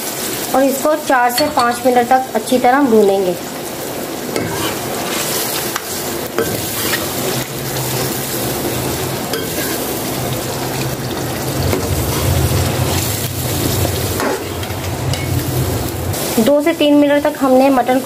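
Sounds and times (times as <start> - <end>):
meat sizzling in hot oil: 0.0 - 18.0
metal spoon scraping pot: 6.4 - 7.4.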